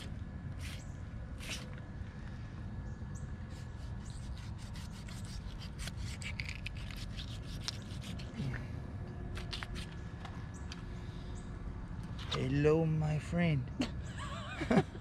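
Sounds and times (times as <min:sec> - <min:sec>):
knife scraping hide: 0:00.0 - 0:01.8, 0:03.5 - 0:08.6, 0:09.3 - 0:10.0.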